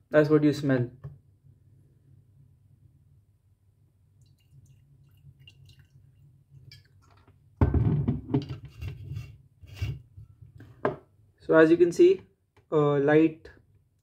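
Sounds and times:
liquid trickling into glass: 4.2 - 7.2
bottle knocking on table: 7.6 - 8.5.

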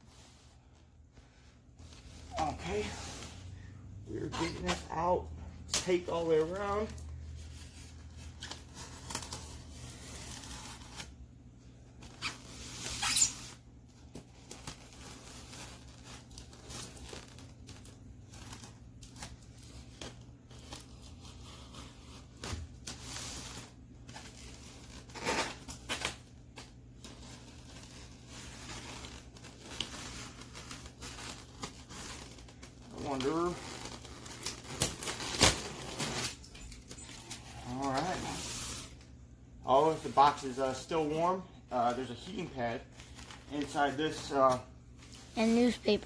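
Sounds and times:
knife cutting packing tape: 33.1 - 38.9.

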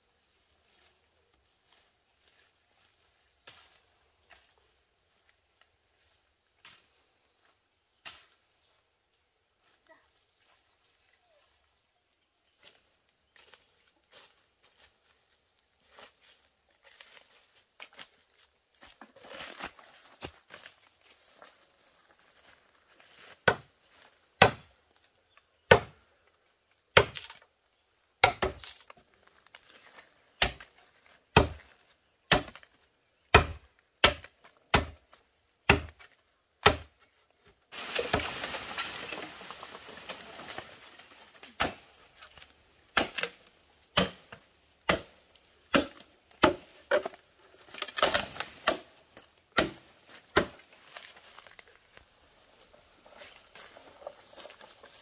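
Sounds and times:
blade chopping wood: 24.4 - 24.7, 25.7 - 26.0, 27.0 - 27.4, 28.2 - 28.8, 30.4 - 30.7, 31.3 - 31.7, 32.3 - 32.7, 33.3 - 36.9, 41.4 - 41.8, 42.9 - 48.9, 49.5 - 50.6.

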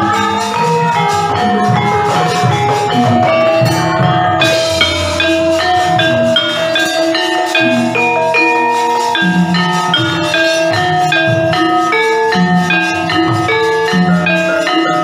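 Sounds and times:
metal mallet instruments ringing: 0.0 - 15.0
low drum strokes: 2.0 - 8.0.

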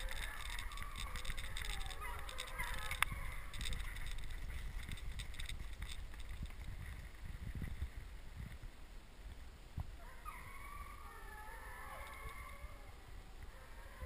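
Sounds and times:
hounds baying: 0.0 - 4.2, 10.0 - 14.0
crackling movement: 0.0 - 11.0
wind rumble on microphone: 0.0 - 11.0.

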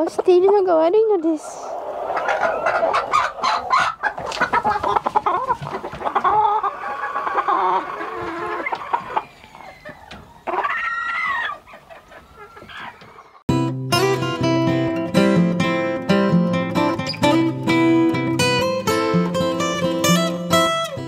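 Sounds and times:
chickens clucking: 0.0 - 13.4.

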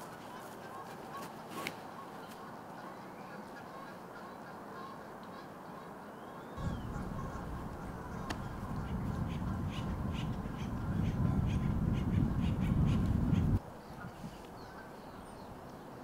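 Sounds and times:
low rumble: 6.6 - 13.6.

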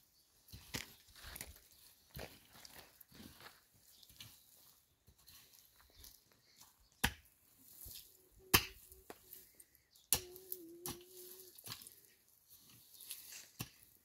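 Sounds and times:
digging tool striking stony soil: 6.9 - 9.3, 12.7 - 14.0.

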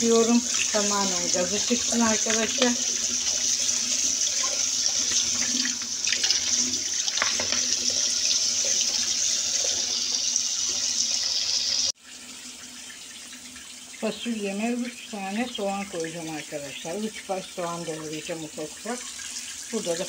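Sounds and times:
tap water splashing on beans: 0.7 - 3.6, 4.4 - 9.0.

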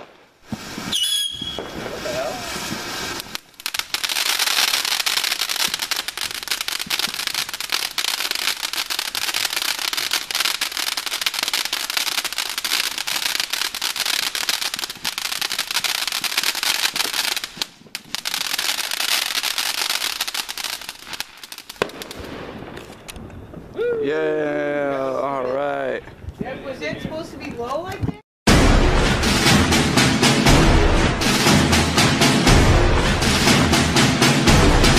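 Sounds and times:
firework crackling and hissing: 0.0 - 23.1.

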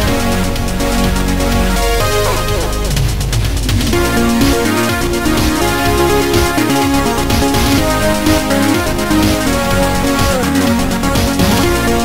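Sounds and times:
electronic tracker music: 0.0 - 12.0.

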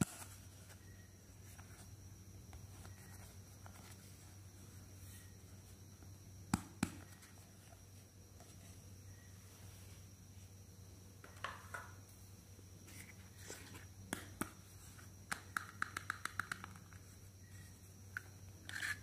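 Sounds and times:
faint steady hum: 0.0 - 19.0
plastic toy clicks and taps: 15.3 - 16.9.

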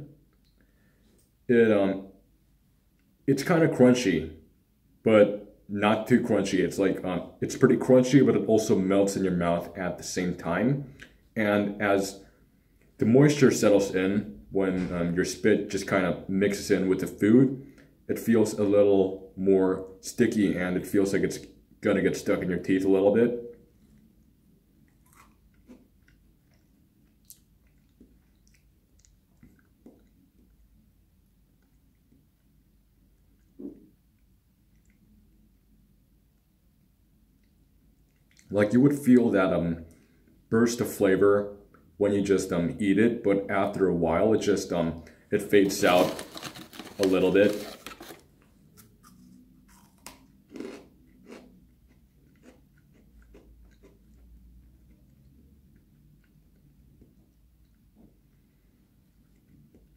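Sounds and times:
chewing with soft crunches: 23.5 - 36.5, 37.2 - 38.6, 48.7 - 59.9.

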